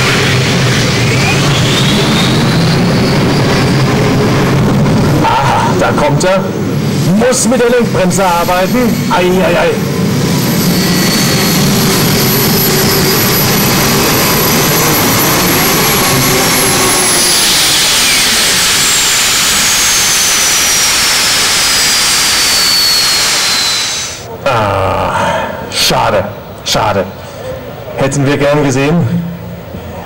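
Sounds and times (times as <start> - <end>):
high whine: 0.0 - 30.0
tractor engine at full power: 11.6 - 24.3.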